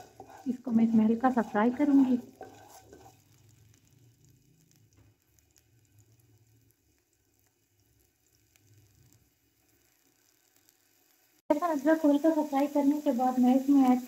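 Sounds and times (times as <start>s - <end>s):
paste sizzling in oil: 0.0s - 14.0s.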